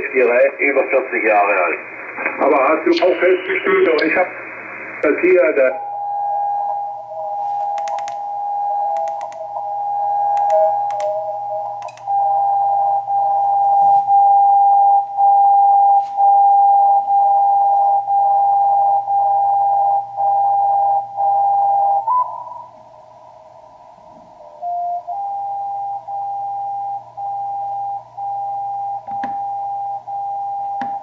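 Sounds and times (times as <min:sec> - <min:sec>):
radio beat tone: 0:01.8 - 0:06.0
sharp tuning clicks: 0:07.8 - 0:08.2, 0:08.9 - 0:09.7, 0:10.3 - 0:12.1.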